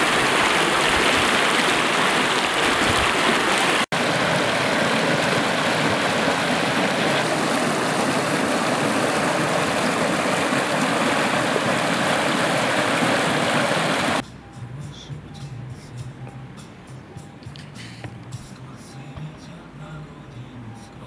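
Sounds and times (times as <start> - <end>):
stream splashing over stones: 0.0 - 14.2.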